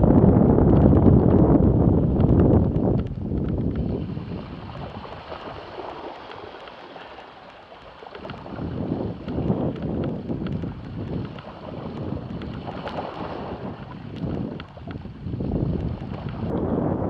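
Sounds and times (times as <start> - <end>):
wind buffeting microphone: 0.0 - 17.0
bike rattling: 0.3 - 3.9, 8.2 - 12.7.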